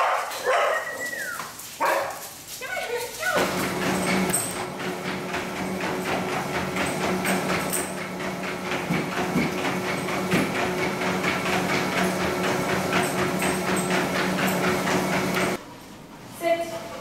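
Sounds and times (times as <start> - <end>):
dog paws tapping on belt: 0.0 - 4.6
treadmill humming: 0.0 - 15.6.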